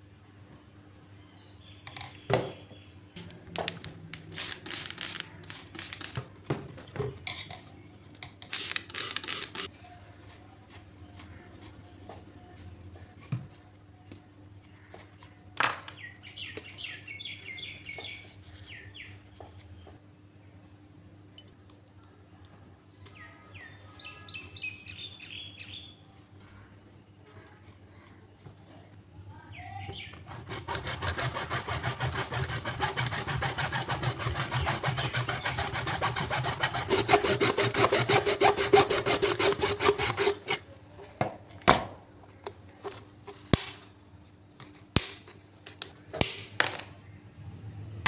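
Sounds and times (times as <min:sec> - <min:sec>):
rubbing and scraping: 0:30.1 - 0:40.6.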